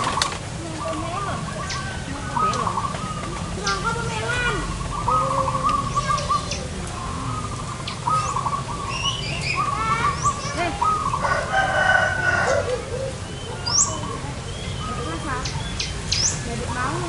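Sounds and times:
doves cooing: 0.0 - 17.0
small birds chirping: 0.0 - 17.0
rooster crowing: 11.2 - 14.0.

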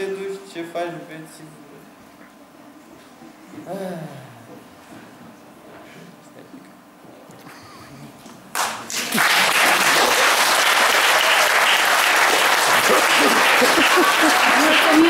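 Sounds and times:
audience applauding: 8.5 - 15.0.

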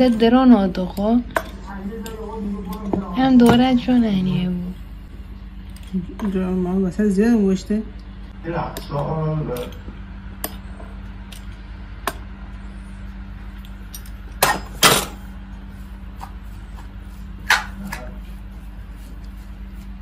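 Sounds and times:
utensils and dishes clinking: 0.0 - 4.1, 13.5 - 15.3
steady low hum: 0.0 - 20.0.

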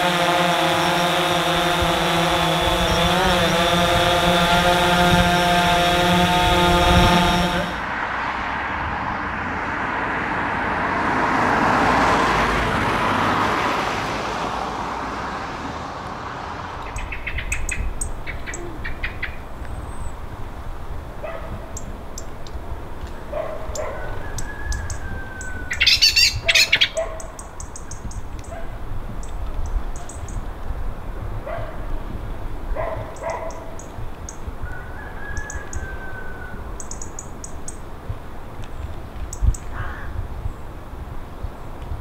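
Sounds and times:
distant jet airliner roar: 0.0 - 30.4
small birds chirping: 0.8 - 7.7, 16.8 - 30.6, 32.8 - 35.9, 36.7 - 37.9, 38.6 - 39.8.

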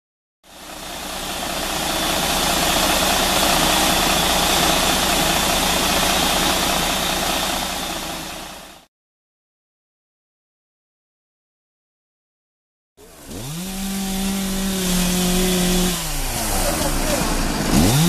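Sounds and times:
diesel engine idling: 0.5 - 8.9, 14.3 - 18.0.

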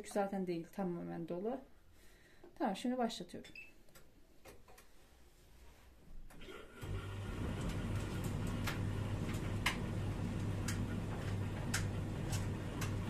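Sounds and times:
tumble dryer motor hum: 6.8 - 13.0.

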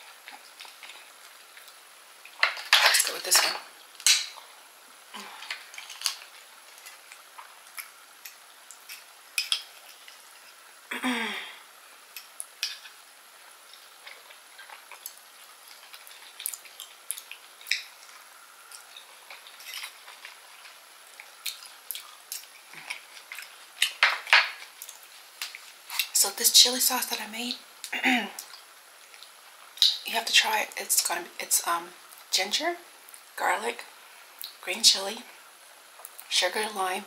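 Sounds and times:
eating sounds: 3.6 - 10.8, 11.5 - 26.1.

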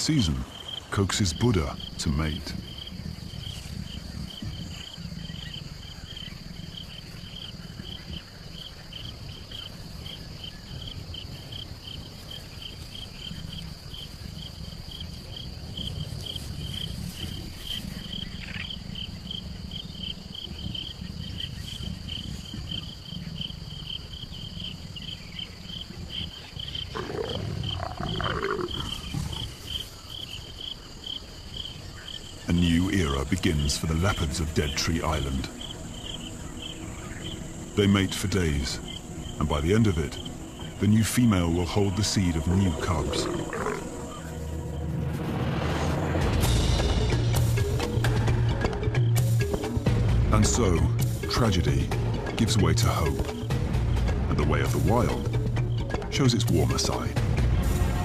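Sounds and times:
insects chirping: 0.0 - 58.0
leopards growling: 12.2 - 44.8
leopard snarling call: 26.8 - 29.8, 42.7 - 44.3.

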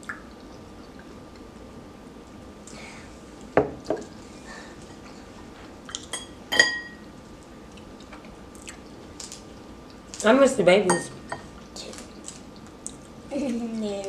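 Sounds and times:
cutlery clinking on ceramic dishes: 6.1 - 7.0.

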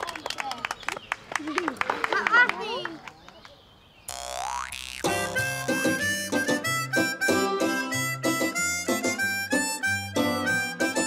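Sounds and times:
instrumental cartoon music: 4.1 - 11.0.

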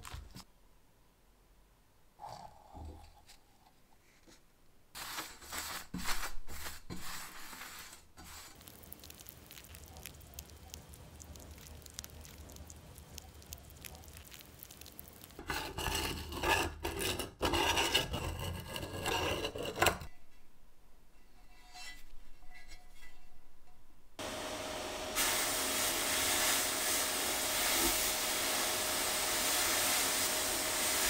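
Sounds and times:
paint brush rubbing metal plate: 5.0 - 8.7
hard scraping on metal plate: 15.4 - 20.1.

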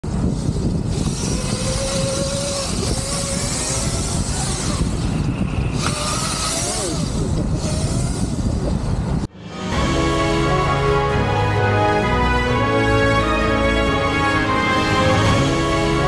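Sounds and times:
wind rumble on microphone: 0.0 - 9.3
electric motor whine: 0.3 - 8.9.

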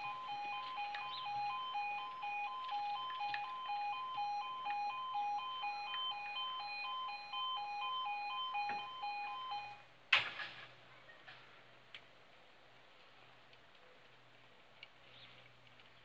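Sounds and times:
two-tone level crossing alarm: 0.0 - 9.8.

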